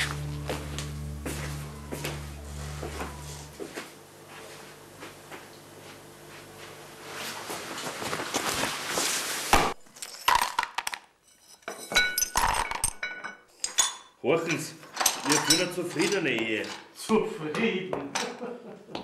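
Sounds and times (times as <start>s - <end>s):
low hum: 0.0s - 7.2s
crockery shards clinking: 11.3s - 14.1s, 15.0s - 16.9s.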